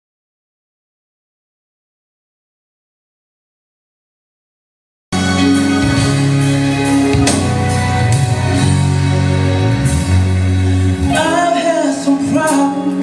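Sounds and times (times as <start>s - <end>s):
keyboard chords and bass: 5.1s - 13.0s
person singing: 11.0s - 13.0s.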